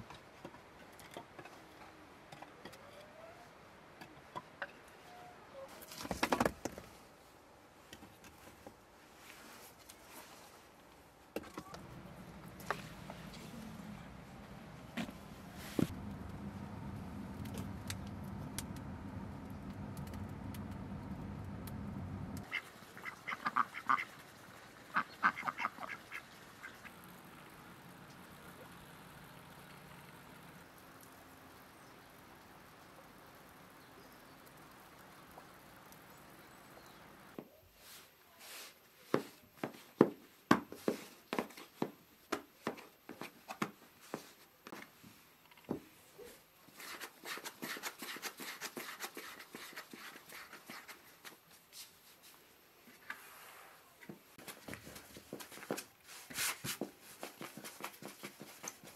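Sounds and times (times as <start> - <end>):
fire burning with crackles: 11.7 - 22.5, 26.9 - 37.4
ducks quacking: 22.4 - 24.2, 24.9 - 27.0.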